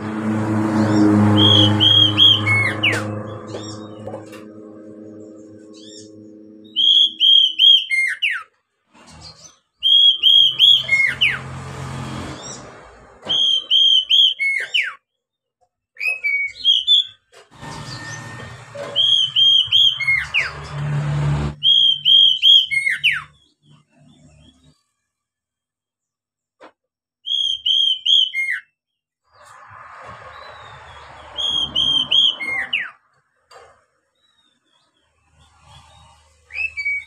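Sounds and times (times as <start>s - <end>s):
bird singing whistled notes: 5.7s - 8.4s, 9.8s - 11.4s, 13.3s - 14.9s, 19.0s - 20.5s, 21.6s - 23.5s, 27.2s - 28.7s, 30.4s - 33.0s, 36.5s - 37.0s.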